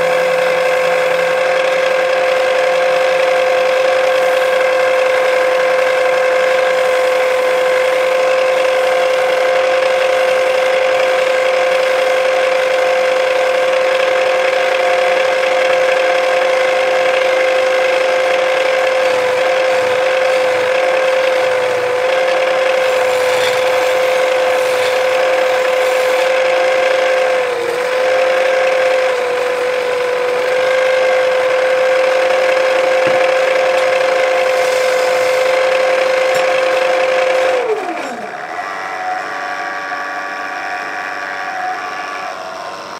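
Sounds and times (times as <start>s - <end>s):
wood lathe motor humming: 0.0s - 42.9s.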